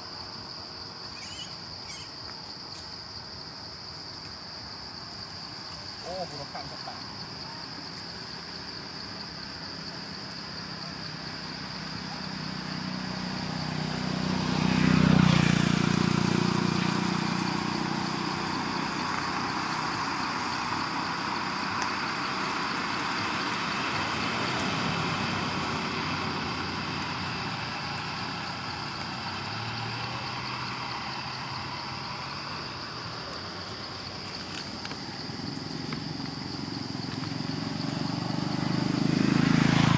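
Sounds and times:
high insect drone: 0.0s - 39.9s
vehicle engine passing: 8.1s - 39.9s.

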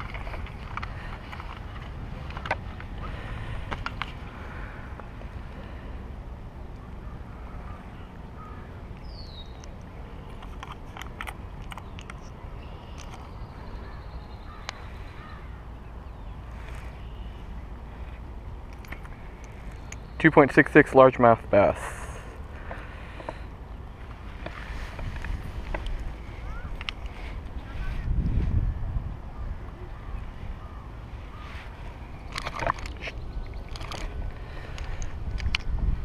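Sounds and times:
low outdoor rumble: 0.0s - 36.0s
small handling clicks: 9.0s - 13.3s, 18.7s - 20.1s, 26.7s - 27.2s, 32.3s - 35.8s.

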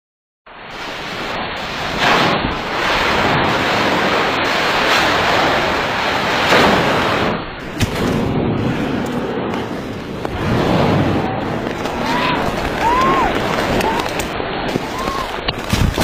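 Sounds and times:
loud steady rushing noise: 0.5s - 16.0s.

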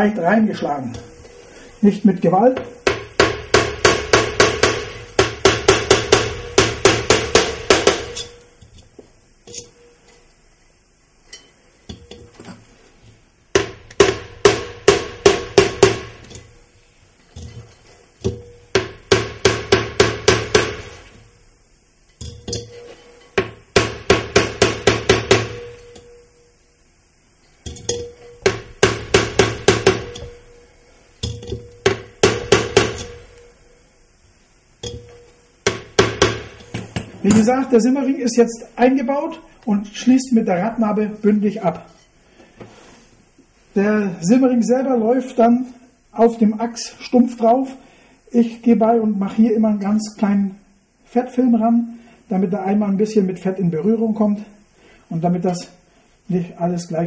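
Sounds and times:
hammer tapping on steel block: 2.6s - 8.4s, 13.6s - 16.4s.

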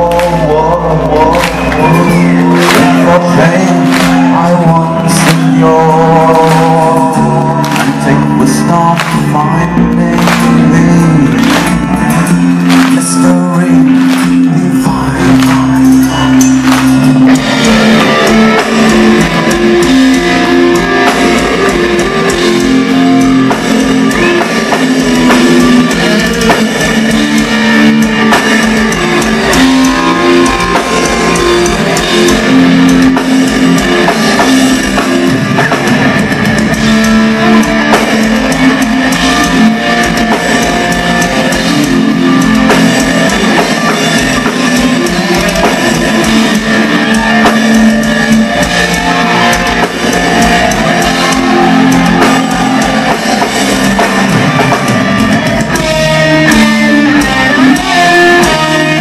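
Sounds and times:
electric guitars chugging riff: 0.0s - 59.0s
pounding drum kit: 0.0s - 59.0s.

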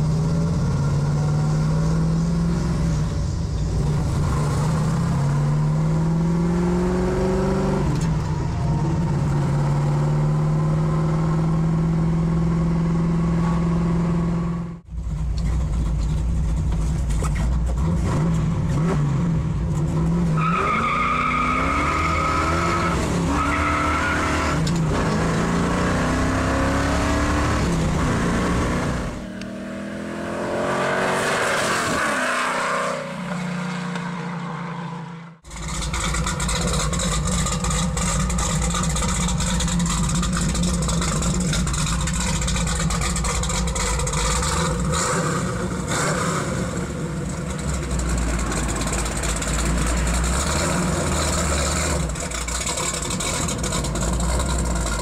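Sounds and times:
car engine running steadily: 0.0s - 21.4s, 35.4s - 55.0s
car engine accelerating hard: 0.0s - 33.8s, 35.4s - 55.0s.

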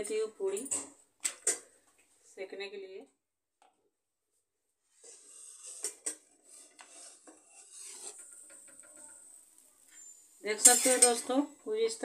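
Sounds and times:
hand rubbing flatbread on griddle: 4.9s - 9.4s
soft hiss: 6.6s - 11.8s.

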